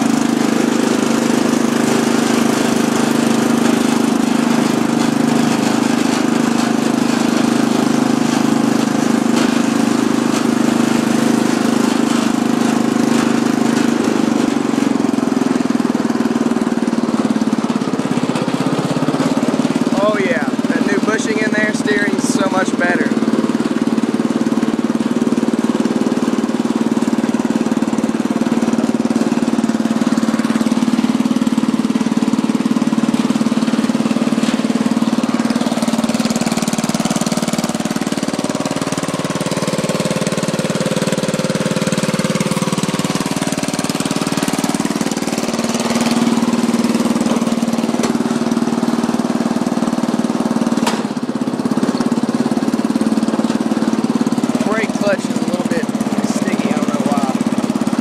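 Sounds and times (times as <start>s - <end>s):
riding lawn mower engine: 0.0s - 58.0s.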